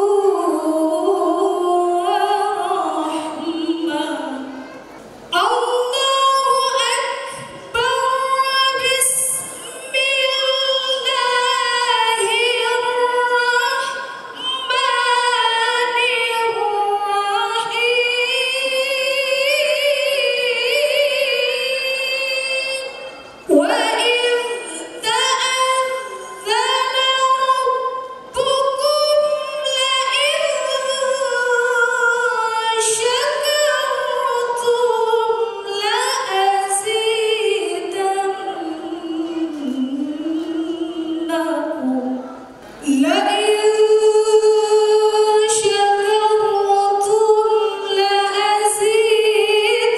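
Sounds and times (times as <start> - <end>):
woman singing slow melody: 0.0 - 4.7, 5.3 - 49.9.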